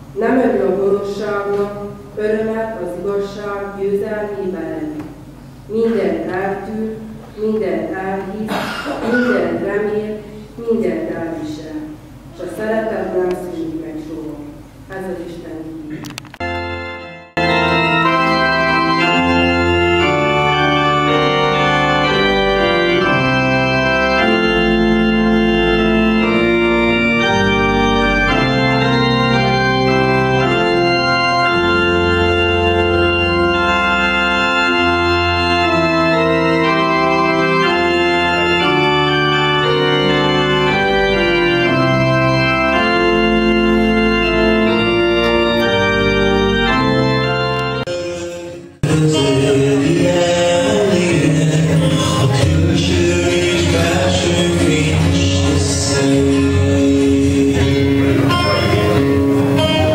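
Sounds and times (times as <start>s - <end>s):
organ playing slow chords: 15.7s - 59.9s.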